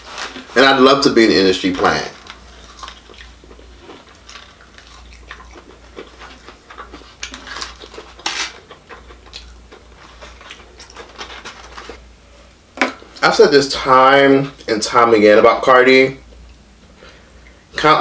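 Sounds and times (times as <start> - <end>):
paper rustling: 0.0 - 0.8
chewing and mouth sounds: 2.2 - 12.0.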